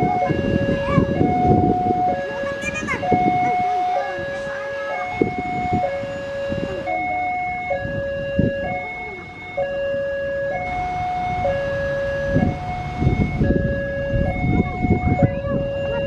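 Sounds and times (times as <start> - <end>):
level crossing two-tone alarm: 0.0 - 16.0
road traffic running: 0.0 - 16.0.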